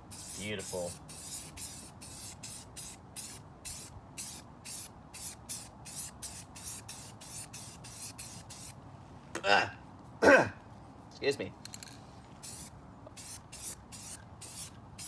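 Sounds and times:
spray paint can hissing: 0.1s - 8.8s, 12.4s - 15.0s.

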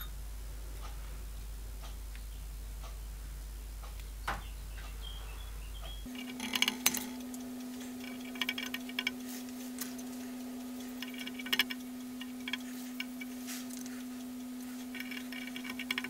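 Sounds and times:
steady low hum: 0.0s - 16.0s
small metal clicks and taps: 6.1s - 9.2s, 10.8s - 16.0s.

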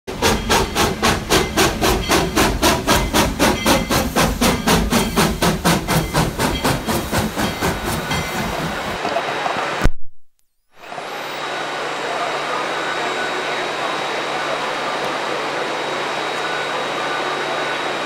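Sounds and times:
steam locomotive chuffing: 0.1s - 9.8s, 10.9s - 18.0s.

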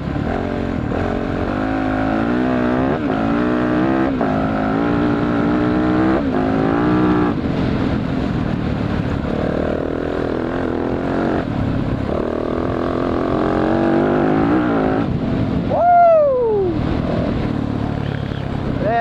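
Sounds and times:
dirt bike engine revving: 0.0s - 8.2s, 9.0s - 15.2s.

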